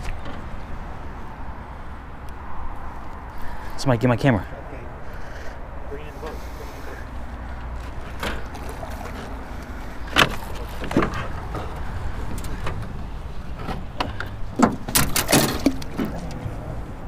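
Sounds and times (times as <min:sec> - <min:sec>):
knocks of gear in metal boat: 0:10.0 - 0:16.5.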